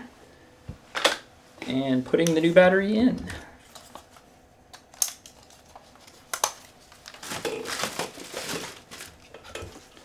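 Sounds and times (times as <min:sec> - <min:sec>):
crinkling handling noise: 0:03.6 - 0:10.0.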